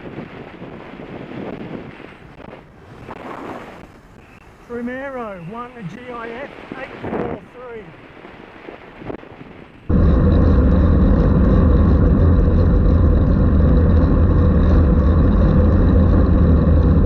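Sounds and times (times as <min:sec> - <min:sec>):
wind buffeting microphone: 0:00.0 - 0:17.0
road noise: 0:02.0 - 0:07.0, 0:09.9 - 0:17.0.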